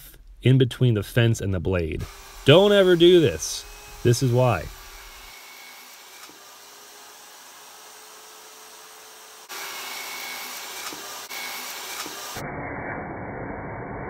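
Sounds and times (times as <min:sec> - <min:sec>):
table saw running: 0:02.0 - 0:12.4.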